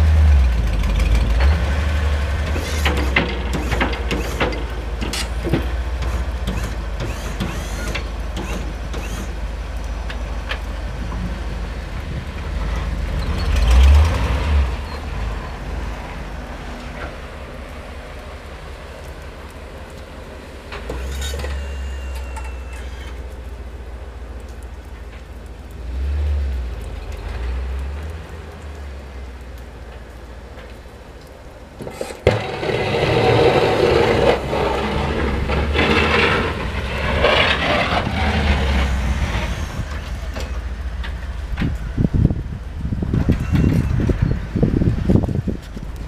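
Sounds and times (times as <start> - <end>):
plow blade scraping snow: 0.0 - 10.1, 10.8 - 23.4, 31.8 - 41.7
truck engine under load: 0.0 - 46.0
low thumps of wind or handling: 27.7 - 46.0.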